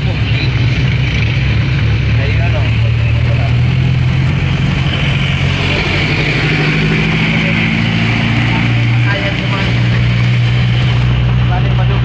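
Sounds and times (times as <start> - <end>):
road noise: 0.0 - 12.0
vehicle engine running: 0.0 - 12.0.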